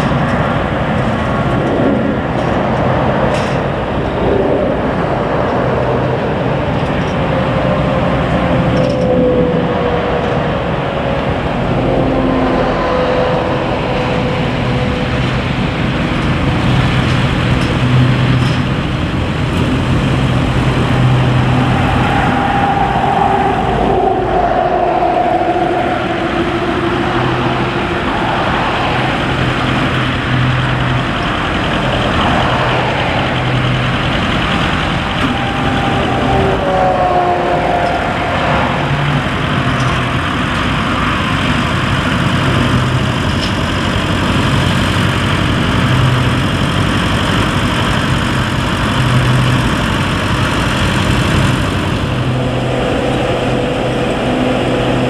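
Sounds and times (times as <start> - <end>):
continuous rumble: 0.0 - 55.0
diesel engines running: 0.0 - 55.0
wavering whine: 0.0 - 55.0.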